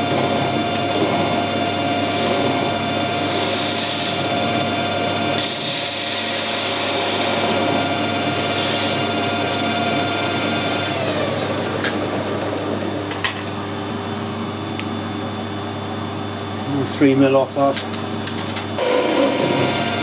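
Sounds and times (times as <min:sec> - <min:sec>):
lathe spindle whine: 0:00.0 - 0:16.9, 0:18.0 - 0:20.0
cutting tool hiss: 0:03.2 - 0:04.4, 0:05.3 - 0:07.4, 0:08.2 - 0:09.2.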